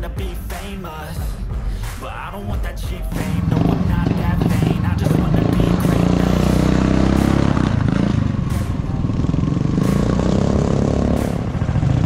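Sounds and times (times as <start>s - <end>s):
vehicle engine running: 3.2s - 12.0s.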